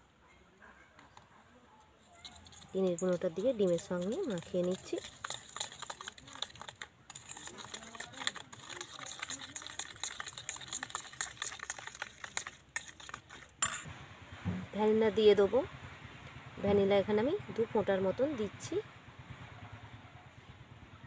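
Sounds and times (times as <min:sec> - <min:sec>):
metal spoon beating in steel bowl: 0:02.1 - 0:13.9.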